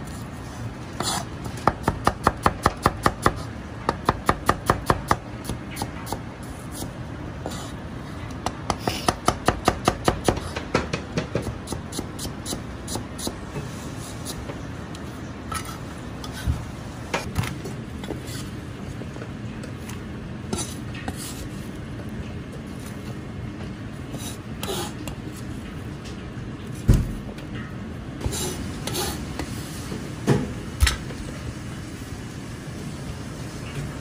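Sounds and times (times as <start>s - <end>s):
cleaver scraping cutting board: 1.0s - 1.4s, 18.0s - 18.5s, 20.5s - 21.5s, 28.2s - 29.2s.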